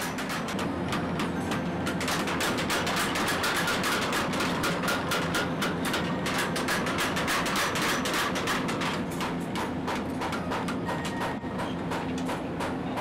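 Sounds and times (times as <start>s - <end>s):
machine running noise: 0.0s - 13.0s
power hammer pounding steel: 0.0s - 13.0s.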